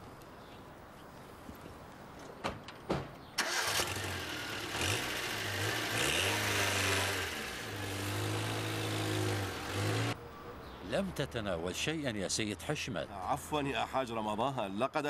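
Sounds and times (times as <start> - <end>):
car engine starting and running: 3.4 - 10.2.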